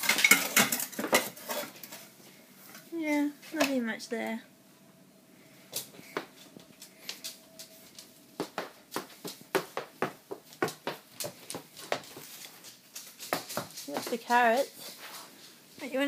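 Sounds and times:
faint steady hum: 0.0s - 16.0s
hooves clopping on wooden floor: 6.2s - 14.7s.

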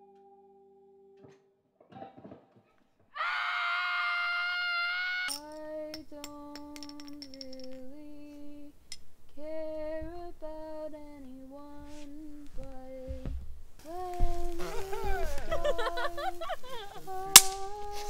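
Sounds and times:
woman singing wordless melody: 5.3s - 18.0s
firework fuse crackling: 13.8s - 18.0s.

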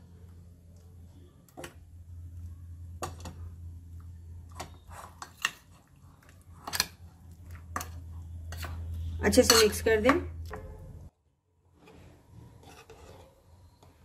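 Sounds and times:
low steady hum: 0.0s - 11.2s
metal spoon scraping steel bowl: 4.5s - 10.6s, 11.8s - 13.8s.

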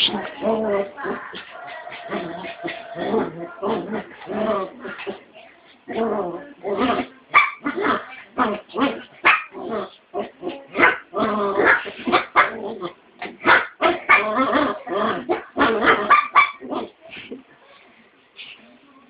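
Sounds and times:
dogs barking and yipping: 7.3s - 8.0s, 13.5s - 16.7s.

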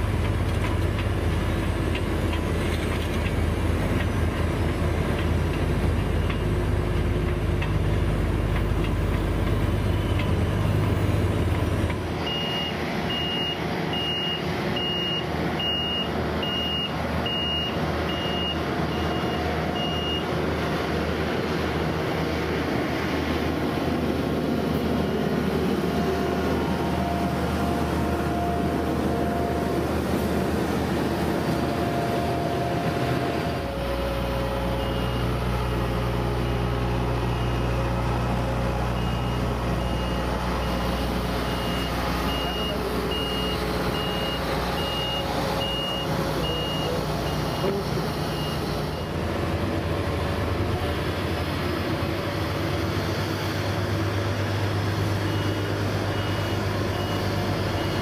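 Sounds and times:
diesel engine humming: 0.0s - 58.0s
road roller running: 0.0s - 58.0s
reversing alarm beeping: 12.2s - 20.3s, 31.6s - 49.2s, 54.6s - 58.0s.

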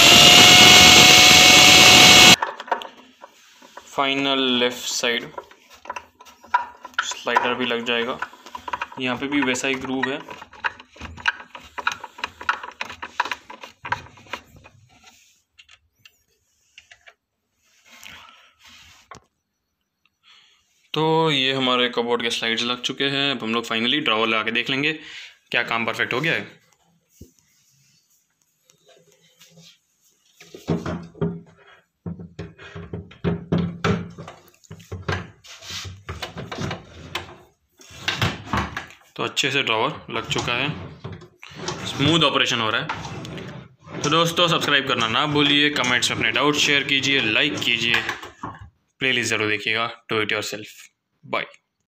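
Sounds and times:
screwdriver clicking and scraping: 5.4s - 16.2s
drawer runners rolling and scraping: 34.0s - 38.9s, 40.1s - 48.7s.

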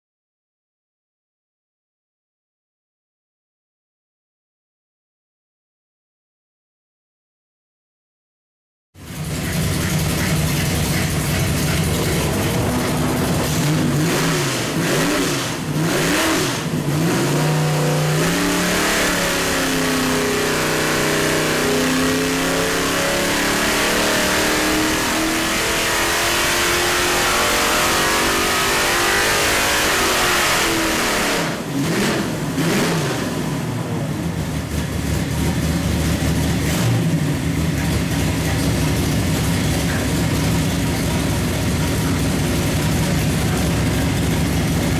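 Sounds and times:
car engine revving under load: 9.0s - 44.9s.

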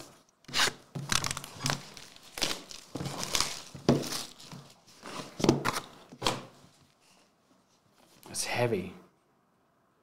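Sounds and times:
foil wrap tearing and crumpling: 0.5s - 4.7s.

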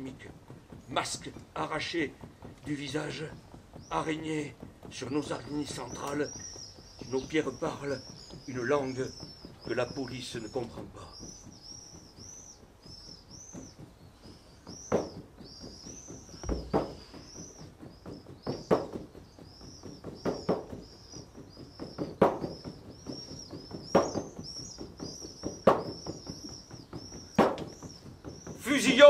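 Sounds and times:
small bird chirping: 0.0s - 29.0s.

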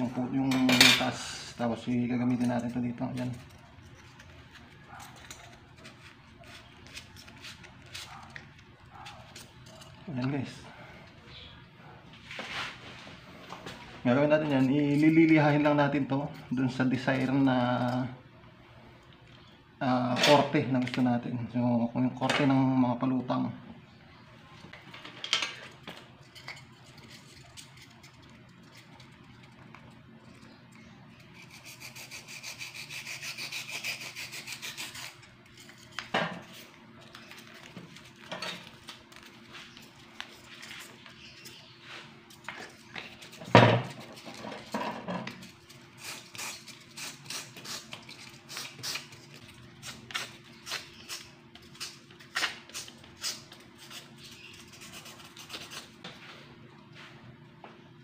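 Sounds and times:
styrofoam scraping on sandpaper: 31.4s - 35.6s.

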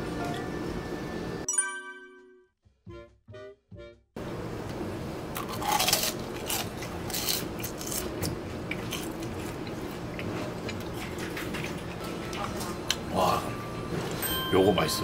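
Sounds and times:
steady background hum: 0.0s - 1.5s, 2.9s - 15.0s
crunchy bites and chewing: 5.4s - 10.8s.

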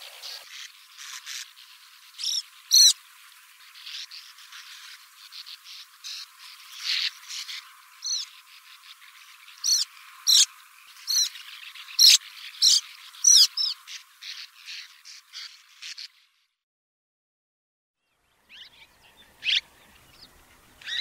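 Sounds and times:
bird chirping: 2.2s - 3.0s, 6.9s - 8.4s, 9.6s - 10.5s, 11.1s - 13.8s, 18.0s - 21.0s.

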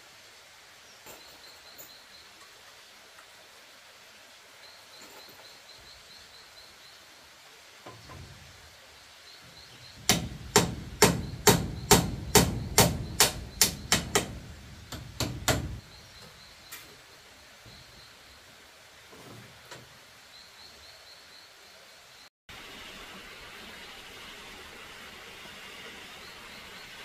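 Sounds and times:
hammer striking bamboo: 10.0s - 15.8s.

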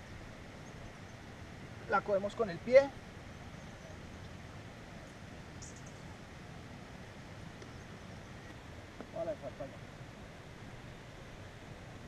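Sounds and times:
bird chirp: 0.0s - 1.3s, 3.3s - 4.4s, 5.5s - 6.2s.

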